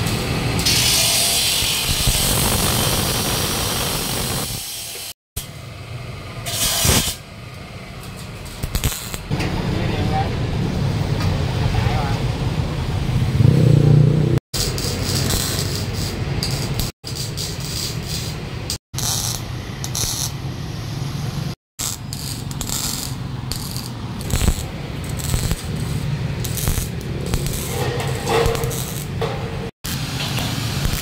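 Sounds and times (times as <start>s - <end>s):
arc welding crackle and sizzle: 0.0s - 5.7s, 6.4s - 7.3s, 8.0s - 9.4s, 14.6s - 31.0s.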